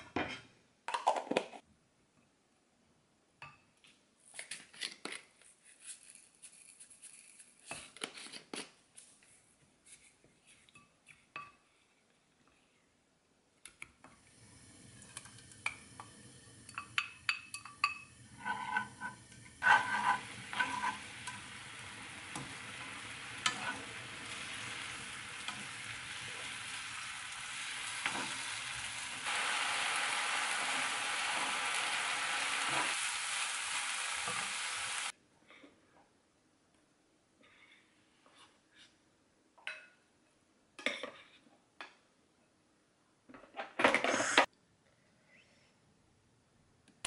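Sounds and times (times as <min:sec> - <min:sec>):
sauce sizzling in a frying pan: 0:14.2 - 0:17.3, 0:18.0 - 0:35.1
wooden spoon scraping a pan: 0:18.3 - 0:21.6, 0:22.3 - 0:26.7, 0:27.8 - 0:28.9.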